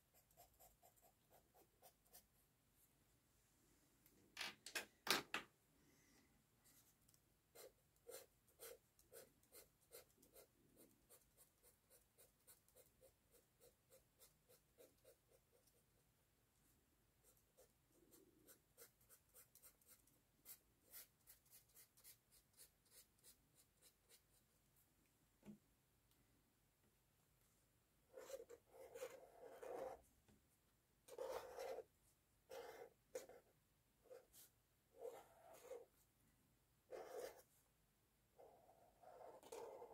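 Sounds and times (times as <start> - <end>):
felt-tip marker scratching on paper: 28.2 - 30.0, 31.1 - 31.9, 32.5 - 33.5, 36.9 - 37.4, 38.4 - 39.9.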